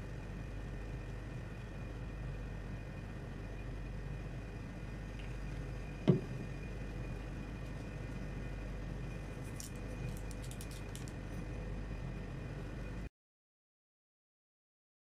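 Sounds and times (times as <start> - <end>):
refrigeration unit humming: 0.0 - 13.1
sharp knock: 6.1 - 6.4.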